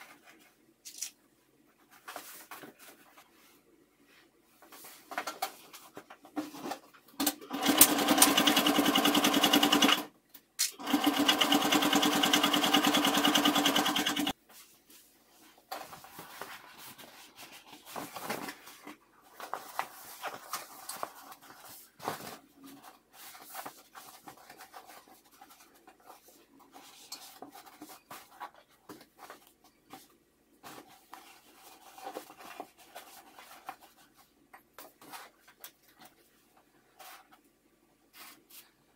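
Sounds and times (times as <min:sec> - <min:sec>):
electric sewing machine stitching: 0:07.2 - 0:10.1, 0:10.7 - 0:14.3.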